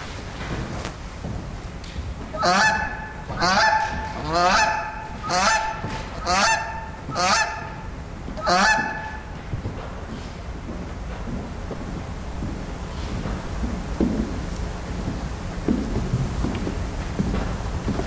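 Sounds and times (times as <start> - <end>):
goose honking: 2.4 - 9.4.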